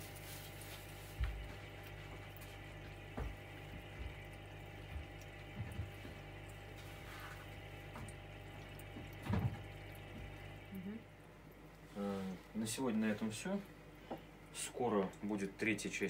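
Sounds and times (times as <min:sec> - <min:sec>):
air pump humming: 0:00.0 - 0:14.7
fine bubbling from airstone: 0:01.4 - 0:12.6
soft low thumps: 0:02.2 - 0:06.4.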